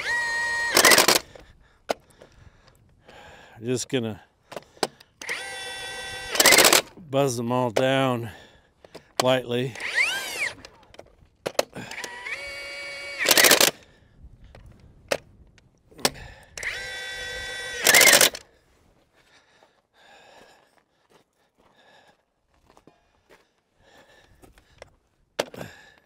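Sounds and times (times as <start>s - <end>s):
impact wrench whining and hammering: 0.0s - 2.1s, 4.5s - 8.1s, 8.8s - 13.9s, 15.9s - 18.5s, 25.4s - 25.7s.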